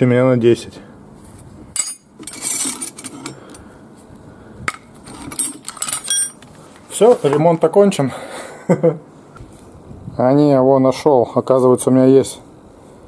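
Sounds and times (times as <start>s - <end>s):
metal tools clinking and rattling: 1.7s - 3.6s, 5.0s - 6.5s.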